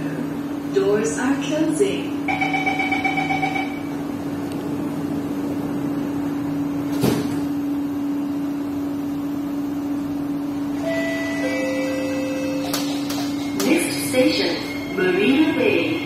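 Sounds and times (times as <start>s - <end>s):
train hum: 9.7s - 16.0s.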